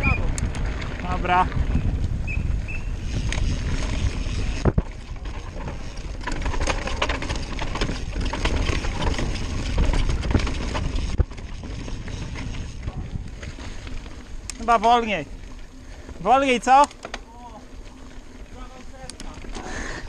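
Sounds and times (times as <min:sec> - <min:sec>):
wind noise on microphone: 0:00.0 - 0:15.2
bike tyres rumbling and rattling: 0:00.0 - 0:20.0.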